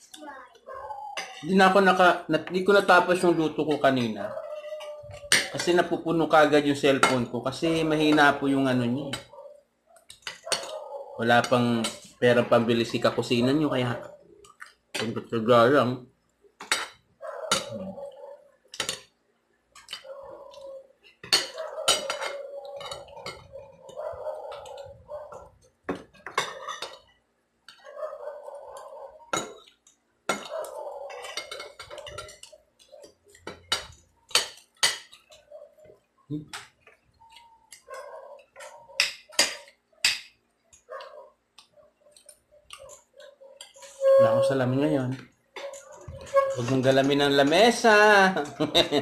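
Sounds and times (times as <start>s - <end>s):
cutlery clinking on plates: 1.2s - 1.5s, 3.8s - 5.8s, 16.6s - 17.8s, 21.1s - 23.5s, 25.9s - 27.1s, 29.3s - 35.4s
eating sounds: 40.7s - 44.0s.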